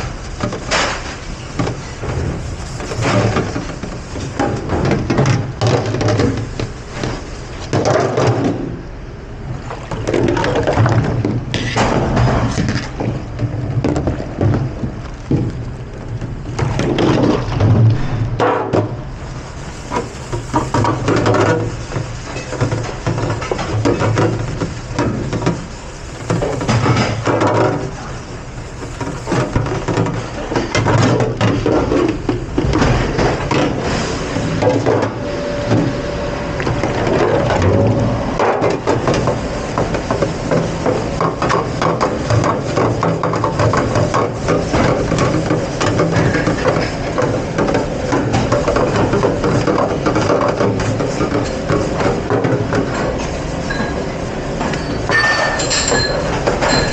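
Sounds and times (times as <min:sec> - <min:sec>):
low machine hum: 0:08.4 - 0:56.9
dishware knocking and clinking: 0:55.1 - 0:56.9.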